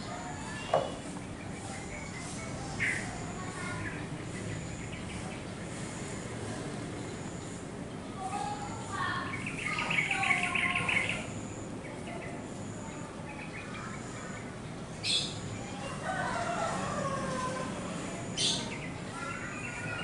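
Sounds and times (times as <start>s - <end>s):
rooster crowing: 15.8s - 17.9s.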